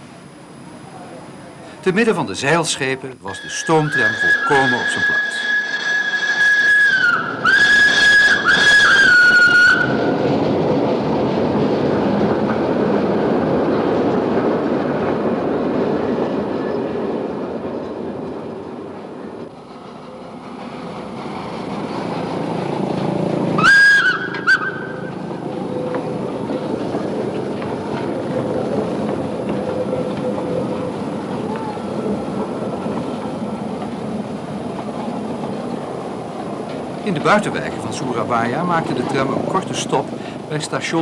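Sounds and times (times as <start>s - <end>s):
tram rolling on street track: 0.0s - 41.0s
steam whistle blasts: 3.3s - 10.2s, 23.6s - 25.2s.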